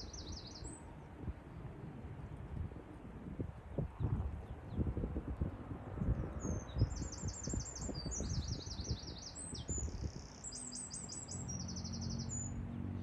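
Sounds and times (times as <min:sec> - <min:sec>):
songbird trilling: 0:00.0 - 0:00.8, 0:06.4 - 0:12.6.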